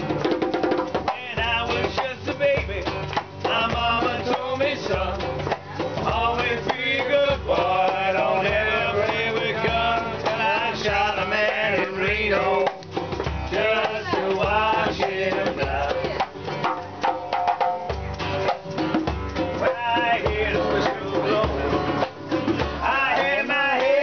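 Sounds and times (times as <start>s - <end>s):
hand drum beat: 0.0s - 24.0s
strummed acoustic guitar: 0.0s - 24.0s
person singing: 3.5s - 12.8s, 13.5s - 16.4s, 19.6s - 22.1s, 22.8s - 24.0s.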